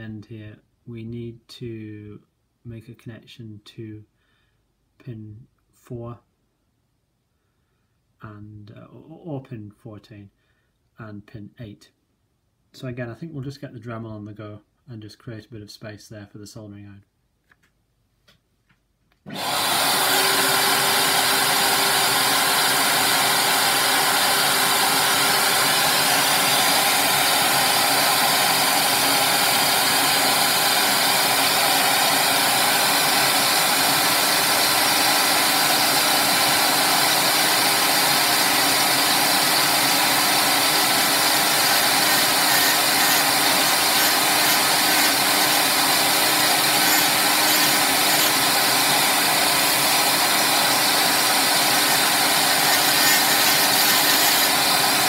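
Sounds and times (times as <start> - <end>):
vacuum hose hissing: 19.3 - 55.0
rotary tool spinning: 37.2 - 55.0.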